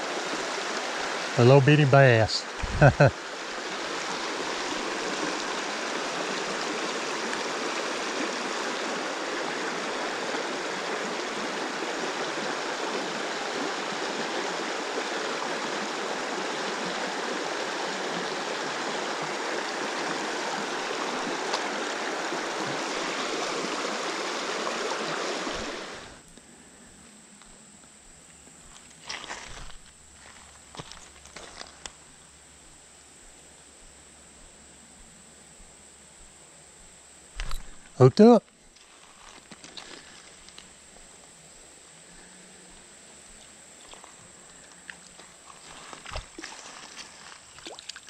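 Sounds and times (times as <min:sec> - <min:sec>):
creek water flowing: 0:00.0 - 0:26.2, 0:37.4 - 0:48.0.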